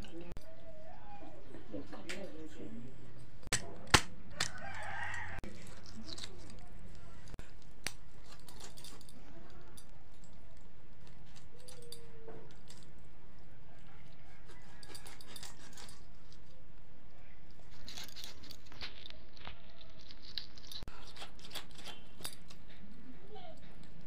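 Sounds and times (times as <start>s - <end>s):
knife cutting raw chicken: 14.2s - 16.2s, 20.8s - 22.7s.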